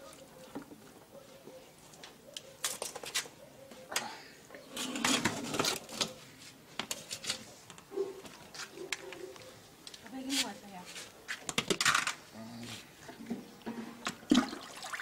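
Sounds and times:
snail shells clattering on metal: 11.5s - 12.2s.

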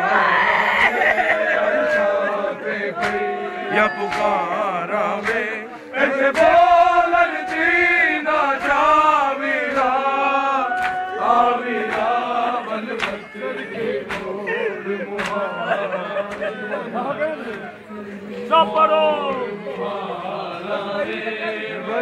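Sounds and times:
men chanting in unison: 0.0s - 22.0s
chest-beating slaps: 3.0s - 3.3s, 4.0s - 4.5s, 5.2s - 5.5s, 15.2s - 15.4s.

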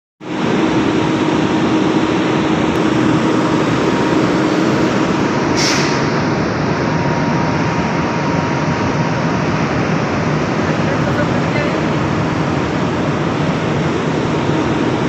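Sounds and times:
industrial machinery noise: 0.2s - 15.0s
short hiss: 5.6s - 6.1s.

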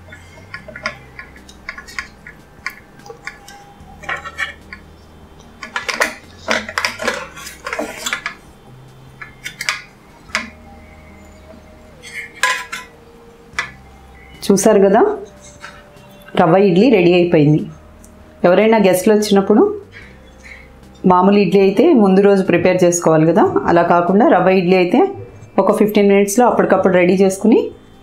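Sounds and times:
metal spoon scraping steel plate: 0.0s - 10.6s, 11.2s - 13.0s, 15.2s - 16.3s.

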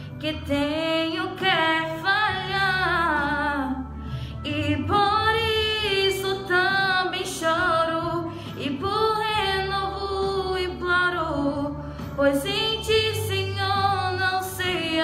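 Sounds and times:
woman singing into microphone: 0.0s - 15.0s
singer breathing: 3.9s - 4.5s, 8.3s - 8.6s.

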